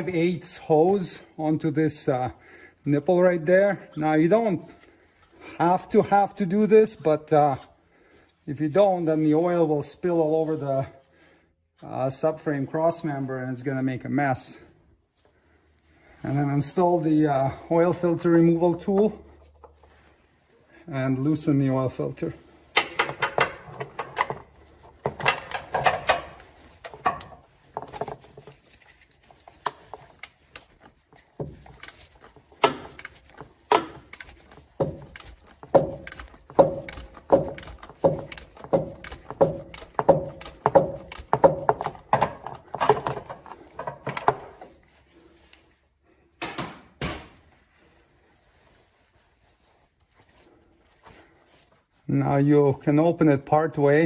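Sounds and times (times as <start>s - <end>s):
ratchet clicking: 32.6s - 41.3s.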